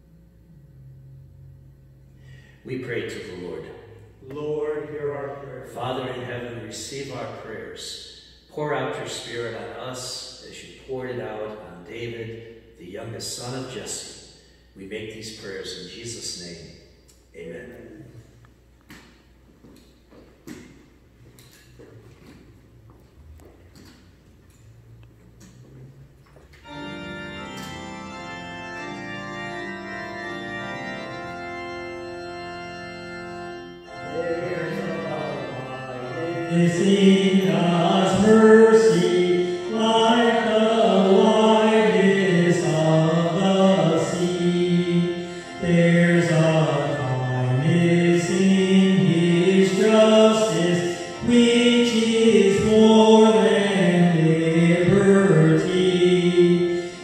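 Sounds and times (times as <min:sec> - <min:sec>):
church organ chords: 0:00.0 - 0:16.8, 0:25.1 - 0:57.0
person singing a hymn: 0:02.6 - 0:07.6, 0:26.6 - 0:57.0.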